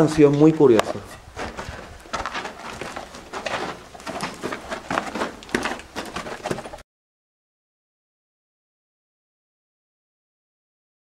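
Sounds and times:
footsteps on gritty floor: 0:00.0 - 0:06.8.

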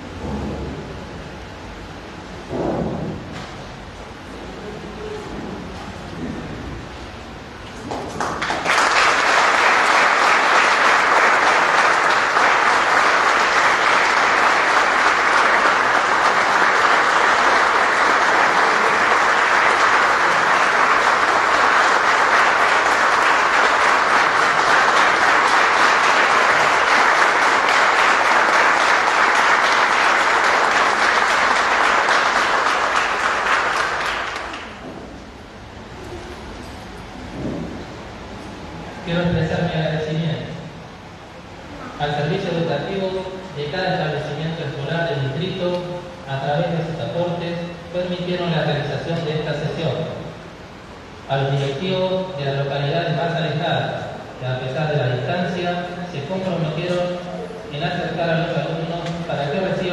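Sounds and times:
audience applauding: 0:07.8 - 0:34.8.

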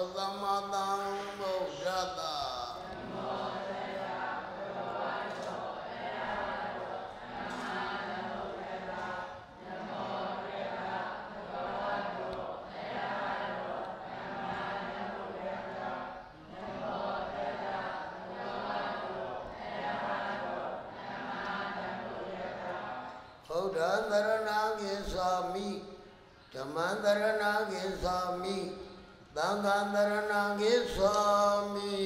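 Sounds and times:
group chanting in unison: 0:00.0 - 0:32.0.

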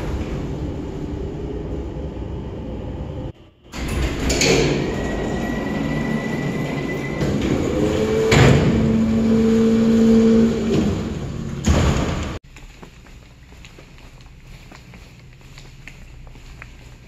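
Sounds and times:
mechanical rumble: 0:00.0 - 0:12.4.

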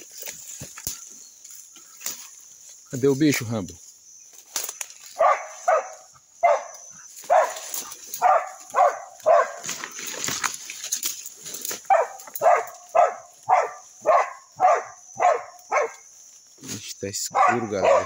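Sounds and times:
dog barking: 0:05.2 - 0:09.7, 0:11.8 - 0:16.0, 0:17.3 - 0:18.0.

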